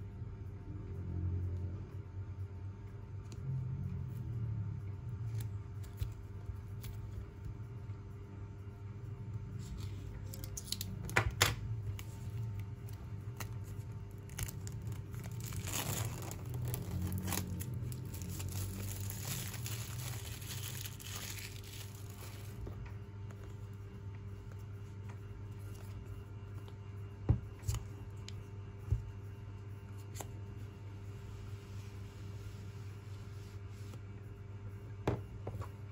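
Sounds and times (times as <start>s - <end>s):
plastic film tearing and crinkling: 10.3s - 11.2s, 13.4s - 22.6s
box cutter cutting plastic wrap: 14.3s - 22.4s.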